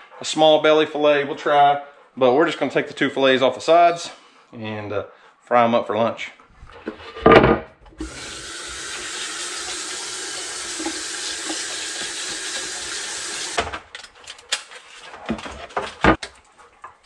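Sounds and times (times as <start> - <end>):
faucet sprayer running water: 8.0 - 13.7.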